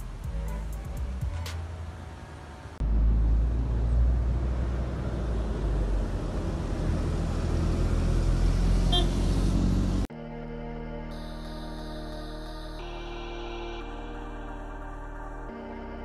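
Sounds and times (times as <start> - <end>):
bus engine running: 0.0 - 10.1
road traffic rumble: 0.0 - 10.1.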